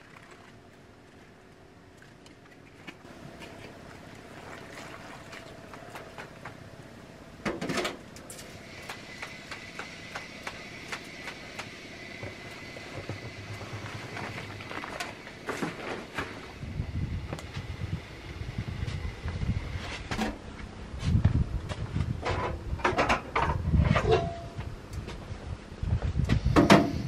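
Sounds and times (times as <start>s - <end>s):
hands washing with splashing: 2.8s - 6.6s.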